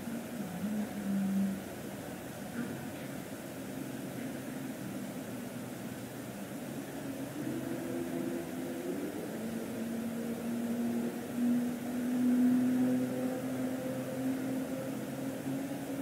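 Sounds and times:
mechanical hum with low drone: 0.0 - 16.0.

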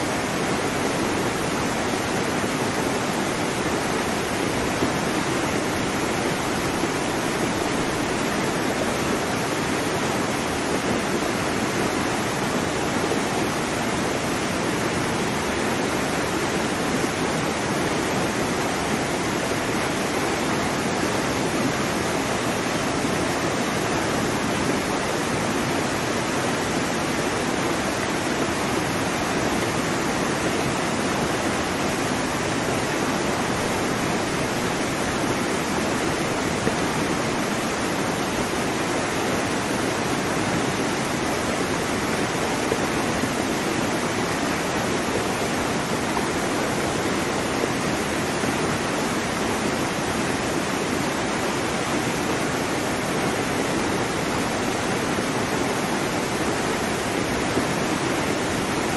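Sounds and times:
rushing water: 0.0 - 58.9.

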